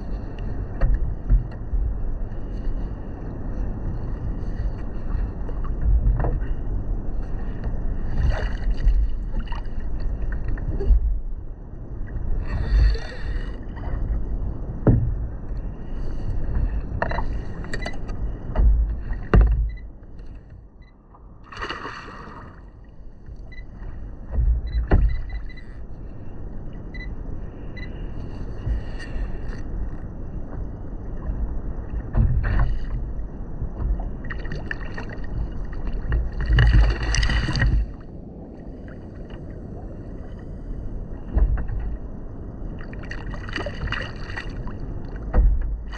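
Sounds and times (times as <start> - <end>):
water slapping against kayak hull: 4.1 - 11.4, 16.4 - 19.8, 21.1 - 25.4, 30.4 - 38.1, 41.1 - 45.9
knocks and splashes: 7.6 - 11.4, 18.5 - 19.8, 21.4 - 22.7, 24.3 - 25.4, 30.5 - 38.1, 41.2 - 42.1, 42.7 - 45.9.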